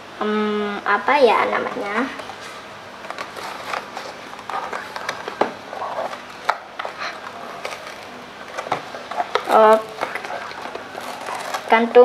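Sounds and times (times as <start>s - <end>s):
hands handling cardboard and scissors: 3.0s - 11.9s.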